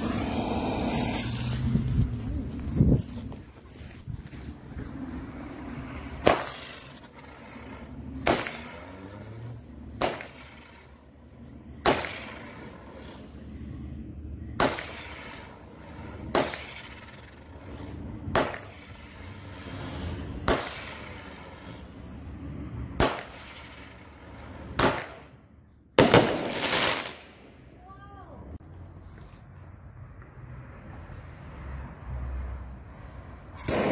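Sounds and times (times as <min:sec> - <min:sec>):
firework bangs: 0:00.0 - 0:02.2, 0:04.6 - 0:13.4, 0:14.5 - 0:25.4, 0:26.0 - 0:27.6, 0:33.5 - 0:33.9.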